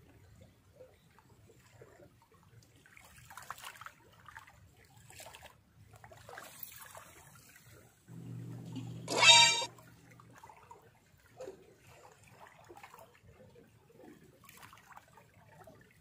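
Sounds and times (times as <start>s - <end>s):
seawater trickling and lapping: 0.0s - 9.0s, 9.7s - 16.0s
low steady hum: 8.1s - 10.6s.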